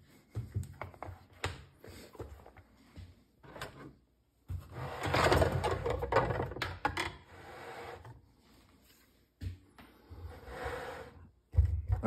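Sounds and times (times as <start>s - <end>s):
plastic clattering and scraping: 3.4s - 8.2s.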